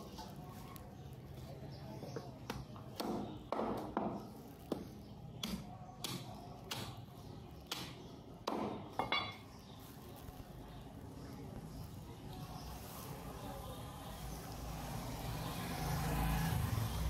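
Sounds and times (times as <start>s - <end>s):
cleaver chopping meat: 2.4s - 7.0s.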